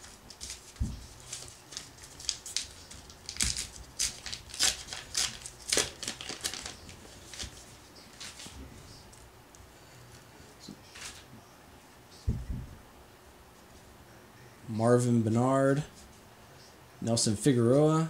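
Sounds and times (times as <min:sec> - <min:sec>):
paper wrapper tearing and crinkling: 0:01.2 - 0:07.6.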